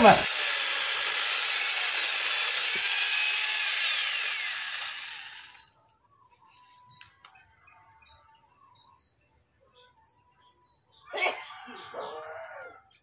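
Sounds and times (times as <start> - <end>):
chainsaw cutting a branch: 0.0 - 5.8.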